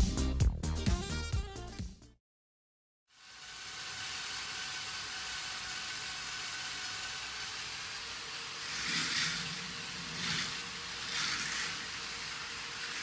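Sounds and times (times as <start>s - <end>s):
motor whir: 3.2s - 13.0s
coaster train rolling on plastic track: 3.4s - 13.0s.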